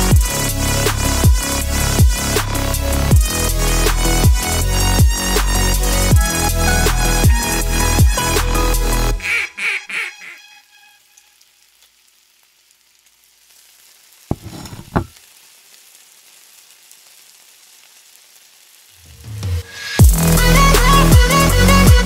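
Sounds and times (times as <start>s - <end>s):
frying sizzle: 0.0s - 8.1s, 11.0s - 20.6s
duck quacks: 9.2s - 10.6s.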